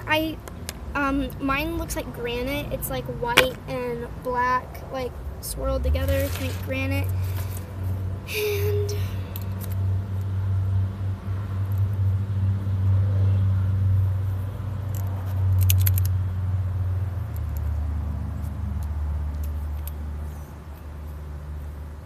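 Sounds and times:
small clicks: 14.9 - 16.2.

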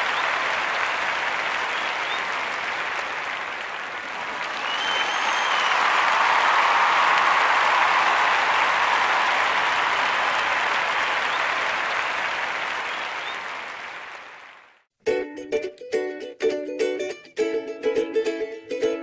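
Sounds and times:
crowd applauding: 0.0 - 14.9.

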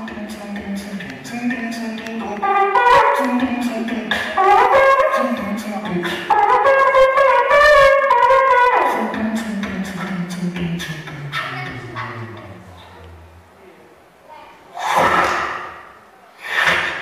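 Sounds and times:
beatboxing: 0.0 - 12.7, 14.7 - 17.0
person singing melody: 0.0 - 13.3.

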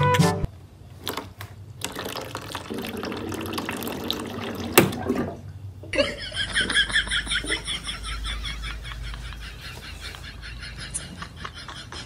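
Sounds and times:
water running from a tap: 1.8 - 5.3.

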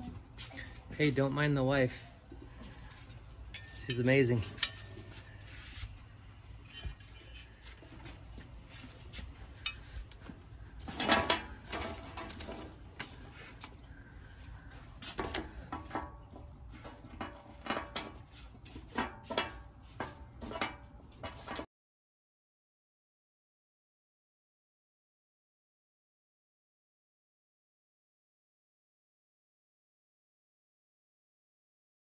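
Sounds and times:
metal brackets clinking: 3.4 - 5.1.

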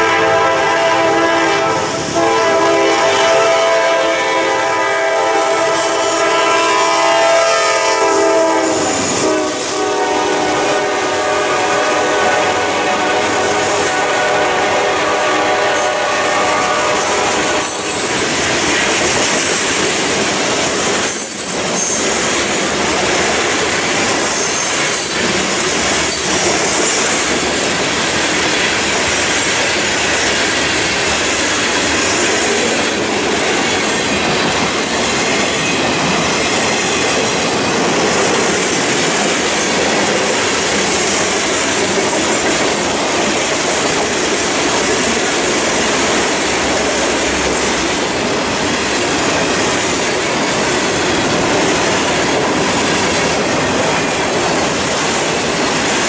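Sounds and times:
locomotive air horn chord: 0.0 - 18.1
train wheels on rail: 0.0 - 56.0.

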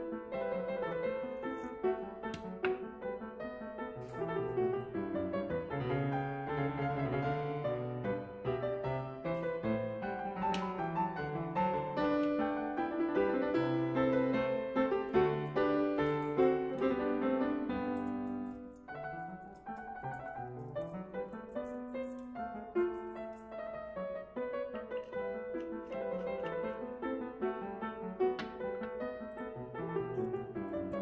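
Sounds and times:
piano music: 0.0 - 31.0.

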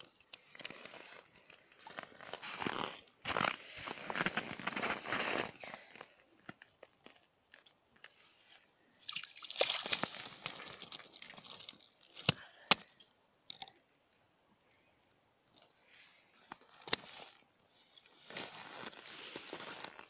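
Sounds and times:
ice chips crunching and scraping: 0.4 - 8.2, 9.6 - 12.4, 18.2 - 20.0.

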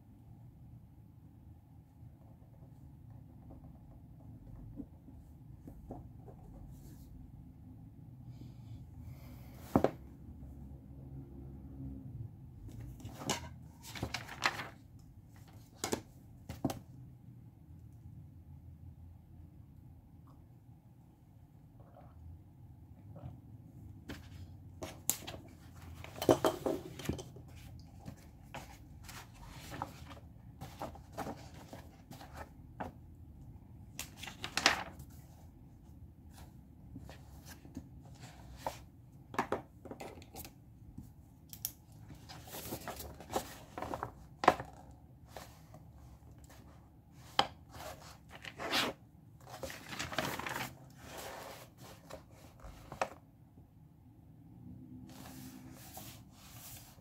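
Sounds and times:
pages turning and rustling: 12.7 - 16.8, 24.1 - 33.0, 33.9 - 35.4, 42.1 - 53.2, 55.1 - 57.0.

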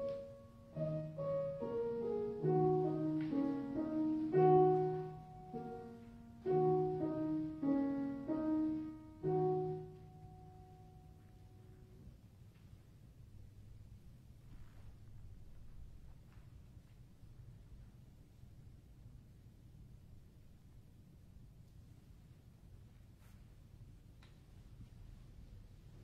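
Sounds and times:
slow solo piano: 0.0 - 12.2.

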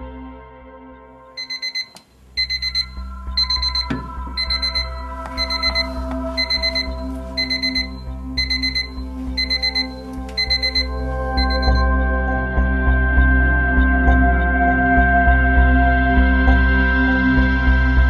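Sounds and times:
alarm clock beeping: 1.4 - 13.3.

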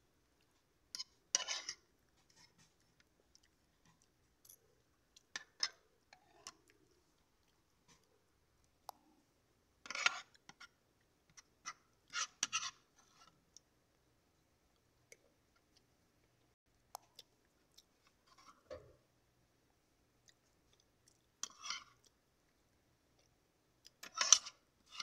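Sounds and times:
cutlery scraping plastic plate: 1.0 - 2.7, 24.0 - 25.0.

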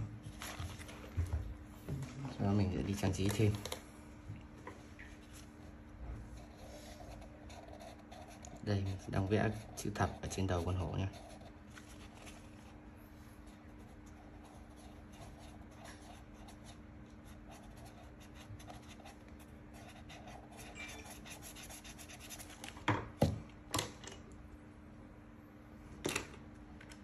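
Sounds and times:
marker pen scratching on paper: 6.4 - 12.4, 13.5 - 22.7.

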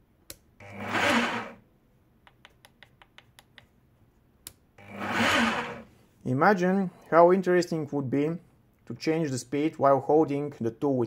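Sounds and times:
hammer drill motor whirring: 0.6 - 1.6, 4.8 - 5.9.

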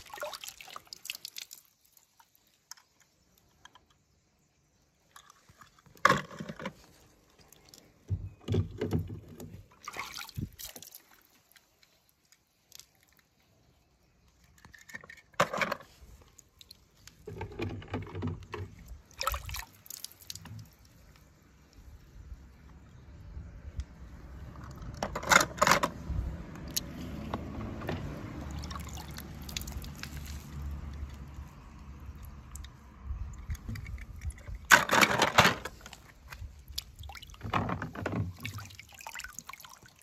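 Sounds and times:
sharp splash: 0.0 - 2.2, 9.8 - 11.3, 19.1 - 20.4
water sloshing and splashing: 0.0 - 3.4, 5.0 - 13.8, 14.4 - 22.1, 26.6 - 40.0.

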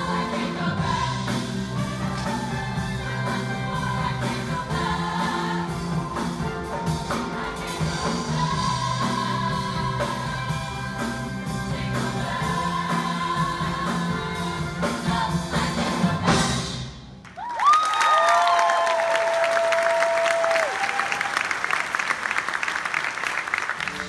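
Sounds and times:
choir singing with accompaniment: 0.0 - 17.1
audience applauding and cheering: 17.2 - 24.0.

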